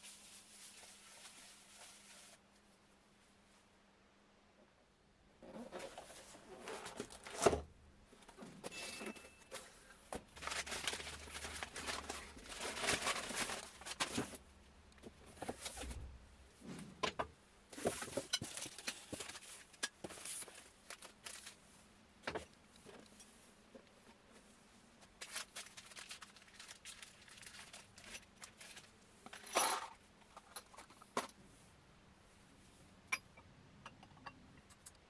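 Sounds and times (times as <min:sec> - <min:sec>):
packing paper rustling and crumpling: 0:00.0 - 0:02.4, 0:05.6 - 0:07.7, 0:09.0 - 0:14.5, 0:17.8 - 0:21.6, 0:25.0 - 0:29.0.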